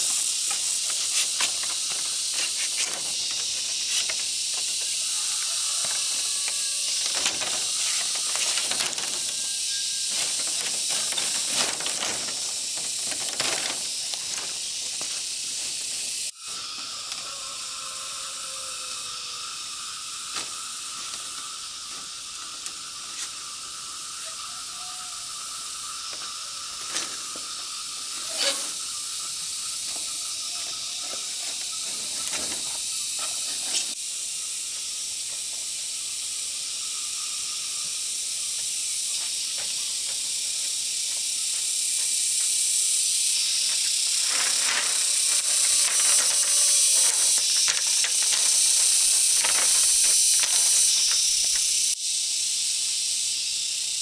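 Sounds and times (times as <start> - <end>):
steady high hiss: 0.0 - 54.0
scattered clicks and knocks: 43.8 - 52.0.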